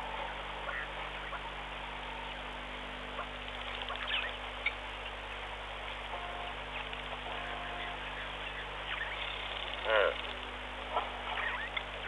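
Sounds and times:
hiss and electrical hum: 0.0s - 12.0s.

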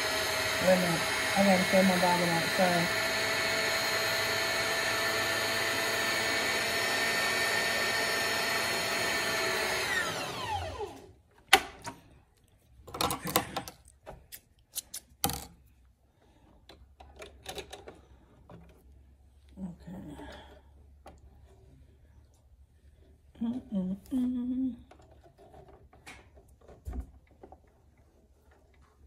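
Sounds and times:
sewing machine motor whining: 0.0s - 11.1s
clicks and knocks of handling: 16.5s - 18.9s.

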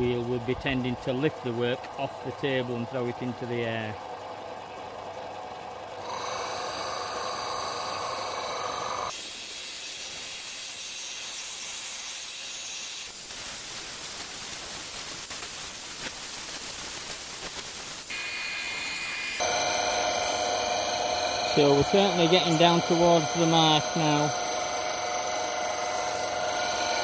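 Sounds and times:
disc sander rasping on wood: 19.4s - 27.0s.

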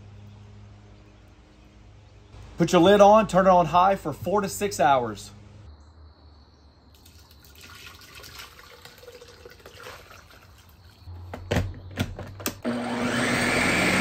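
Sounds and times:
sauce sloshing and gurgling: 7.1s - 10.8s.

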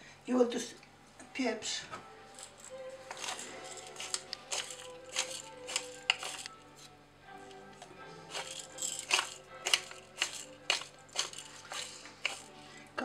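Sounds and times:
faint music: 0.0s - 13.0s
pepper grinder clicking: 2.4s - 6.6s, 8.3s - 12.5s.

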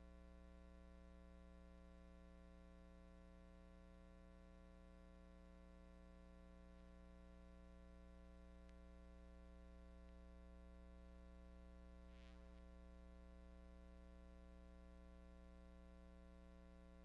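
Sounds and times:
faint steady hum: 0.0s - 17.0s
faint ticks: 8.6s - 9.0s, 9.9s - 10.3s.

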